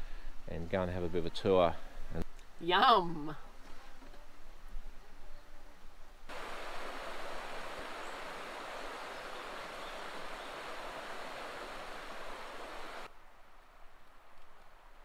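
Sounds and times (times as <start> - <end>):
river rushing over rocks: 6.3 - 13.1.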